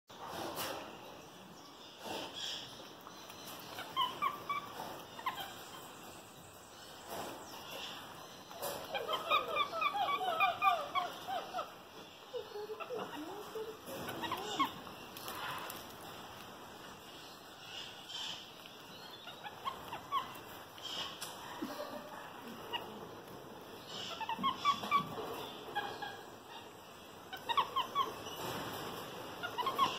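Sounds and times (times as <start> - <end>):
monkey chirping: 3.6 - 5.9, 8.7 - 14.9, 19.1 - 21.2, 23.9 - 26.6, 27.3 - 28.5, 29.4 - 29.9.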